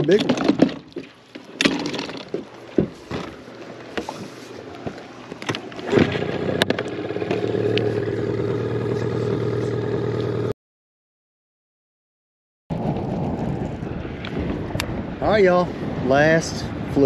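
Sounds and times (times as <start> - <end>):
knocks and clatter: 0.0 - 3.4
outboard motor running: 0.0 - 10.5.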